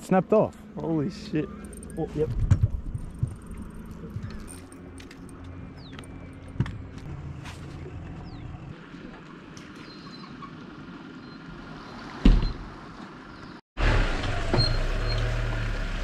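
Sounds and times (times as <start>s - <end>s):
outdoor background noise: 0.0s - 16.0s
car engine running: 0.5s - 11.7s.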